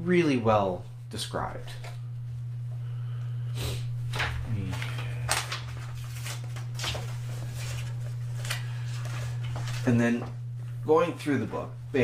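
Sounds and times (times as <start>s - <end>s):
steady low hum: 0.0s - 12.0s
book pages turning: 4.1s - 10.4s.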